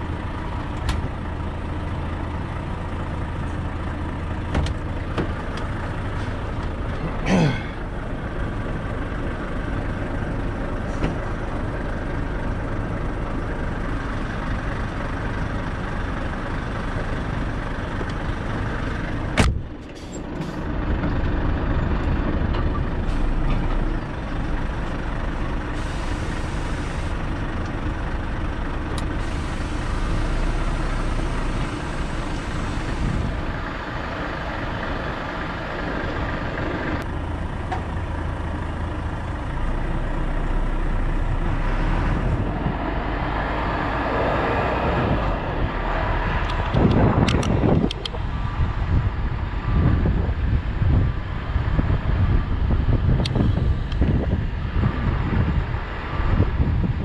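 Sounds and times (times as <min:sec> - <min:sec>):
lorry engine and road noise: 0:00.0 - 0:57.0
sharp click: 0:46.4 - 0:48.2.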